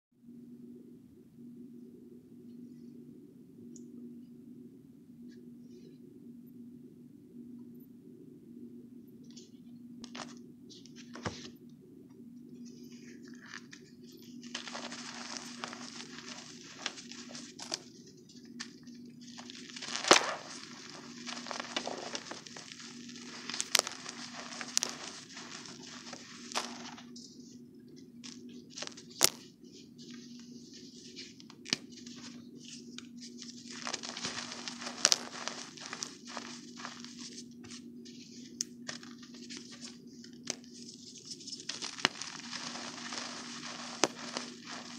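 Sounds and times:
faint steady hum: 0.1 - 44.9
sharp cracks: 19.8 - 20.6.

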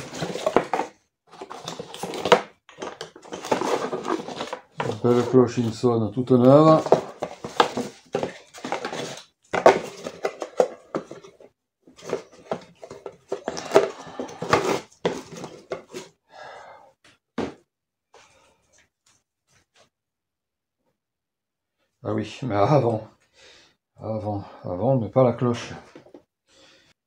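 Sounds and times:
box and wrapping rustling: 0.0 - 16.2.

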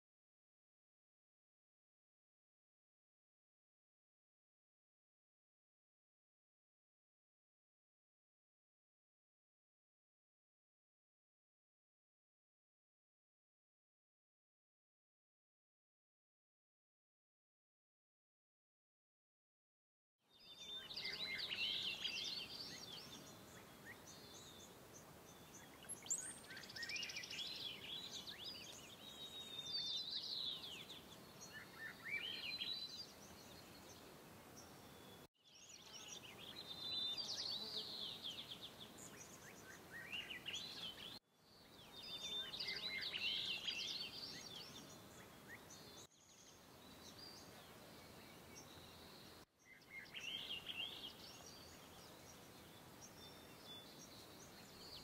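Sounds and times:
faint outdoor hiss: 20.2 - 55.0
songbirds chirping and trilling: 20.2 - 55.0.

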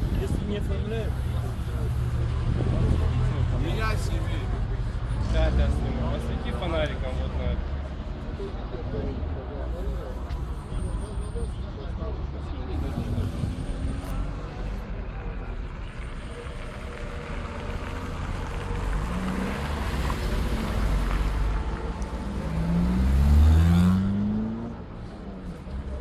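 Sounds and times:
low rumble of car engines: 0.0 - 26.0
car driving past: 16.4 - 25.0.

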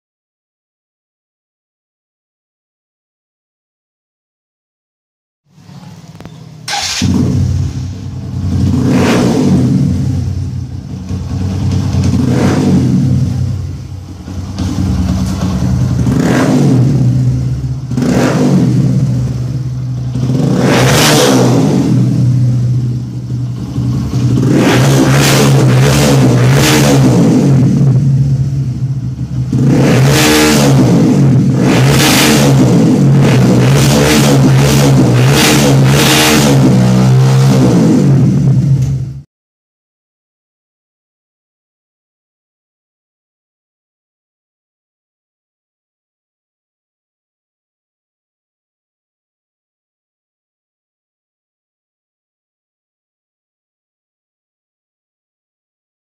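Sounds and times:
motorcycle engine revving: 5.6 - 39.3.

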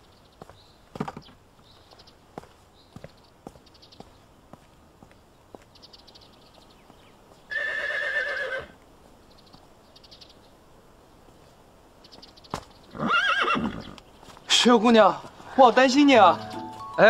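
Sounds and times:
horse whinnying: 7.5 - 8.8, 12.9 - 14.0.

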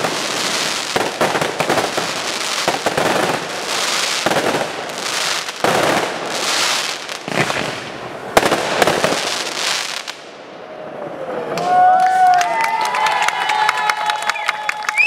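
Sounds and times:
fireworks crackling: 0.0 - 10.4.

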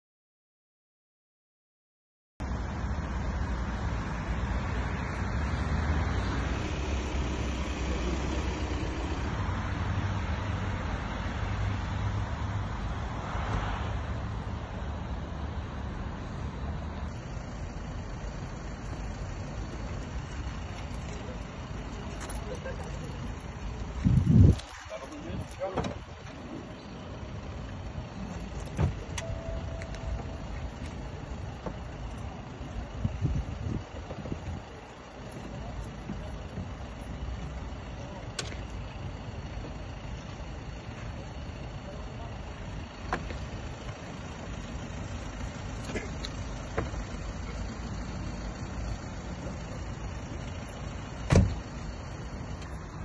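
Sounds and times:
car engines running: 2.4 - 53.0
road noise: 2.4 - 53.0
thump: 28.8 - 29.0, 51.2 - 51.6
faint short beep: 29.2 - 30.6.

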